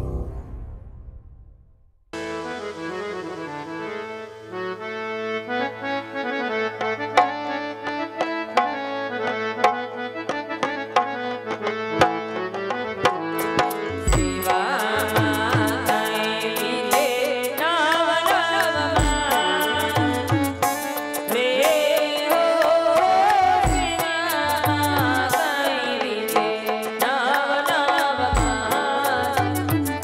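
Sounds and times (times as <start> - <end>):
harmonium melody: 2.2 - 30.0
person singing: 14.1 - 30.0.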